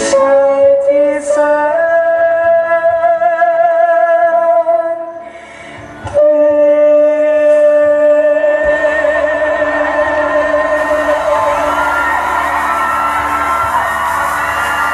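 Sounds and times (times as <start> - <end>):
woman singing sustained notes: 6.1 - 14.9.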